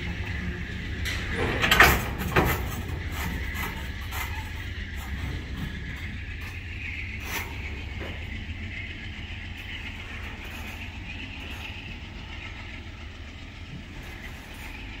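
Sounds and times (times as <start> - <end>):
train wheels rumbling on rails: 0.0 - 15.0.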